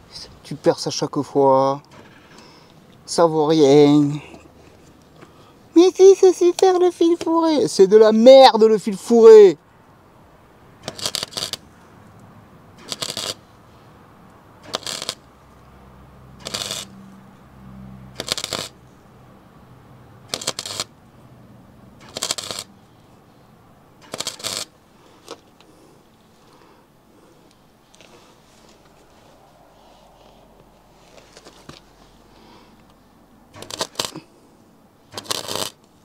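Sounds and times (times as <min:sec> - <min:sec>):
welder arc crackling bursts: 0:10.8 - 0:11.6, 0:12.8 - 0:13.4, 0:14.6 - 0:15.3, 0:16.4 - 0:16.9, 0:18.2 - 0:18.8, 0:20.3 - 0:20.9, 0:22.0 - 0:22.7, 0:24.0 - 0:24.7, 0:33.6 - 0:34.2, 0:35.1 - 0:35.8.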